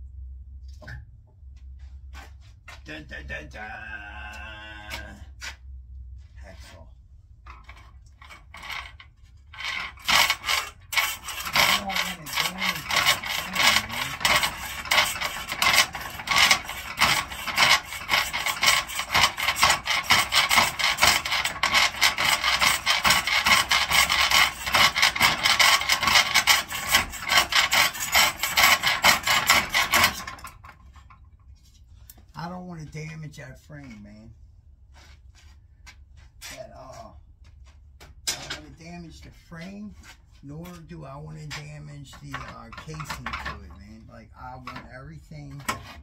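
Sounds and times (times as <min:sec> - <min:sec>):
hand tool scraping rusted metal: 0:07.5 - 0:31.8, 0:41.5 - 0:46.0.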